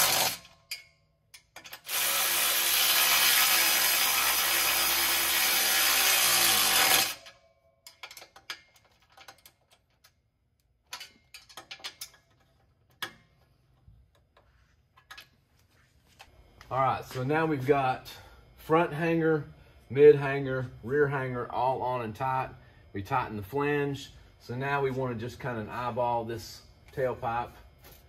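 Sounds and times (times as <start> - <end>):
electric ratchet running: 0.0 - 0.5, 1.6 - 7.4
tool and hardware clicks and rattles: 0.0 - 2.4, 6.0 - 16.3.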